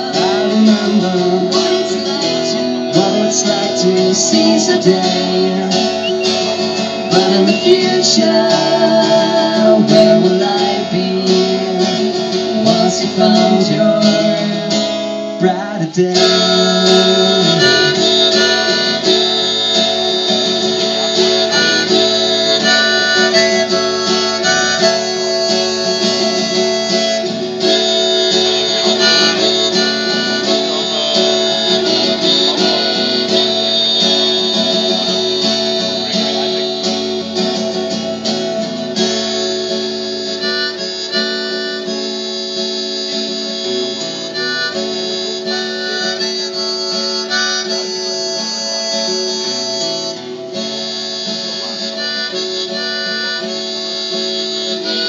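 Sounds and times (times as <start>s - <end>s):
acoustic guitar: 0.0s - 55.0s
harmonica: 0.0s - 55.0s.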